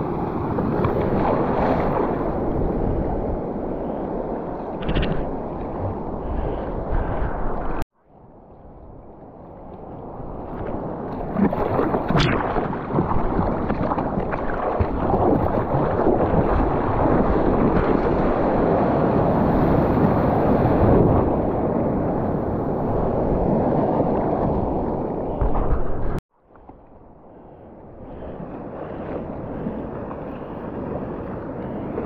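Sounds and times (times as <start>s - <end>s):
wind buffeting microphone: 0.0s - 7.8s
ocean surf churning: 0.0s - 7.9s, 9.8s - 26.2s, 27.1s - 32.0s.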